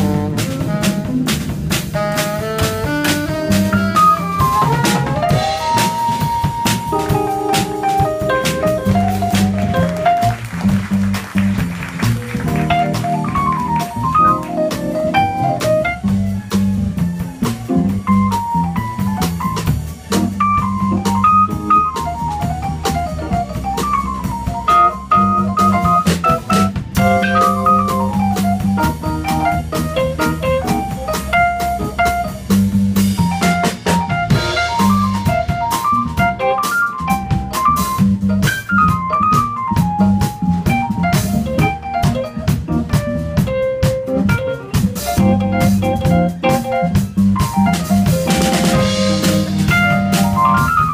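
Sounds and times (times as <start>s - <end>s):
saxophone melody: 0.0s - 32.4s, 43.0s - 50.9s
bass line: 0.0s - 50.9s
drum kit with cymbals: 0.0s - 50.9s
keyboard accompaniment: 0.0s - 50.9s.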